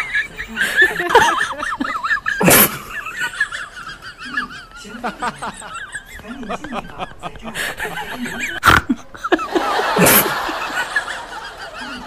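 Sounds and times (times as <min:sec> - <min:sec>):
high-pitched wavering laughter: 0:00.0 - 0:12.0
sharp sneeze-like burst: 0:02.4 - 0:02.9, 0:10.0 - 0:10.4.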